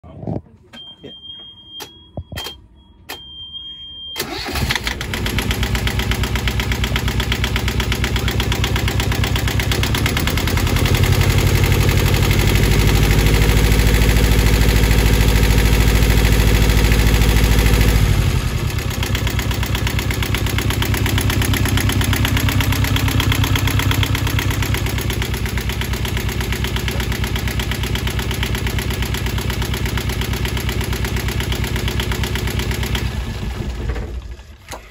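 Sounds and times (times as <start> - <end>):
high steady beep tone: 0.8 - 4.2
diesel engine starting and revving: 4.2 - 34.9.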